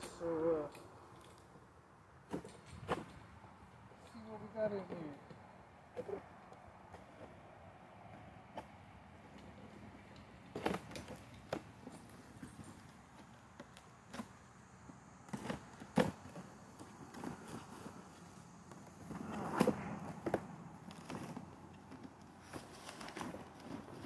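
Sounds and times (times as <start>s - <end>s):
cardboard rustling: 15.3s - 24.0s
cardboard flaps scraping: 18.8s - 24.0s.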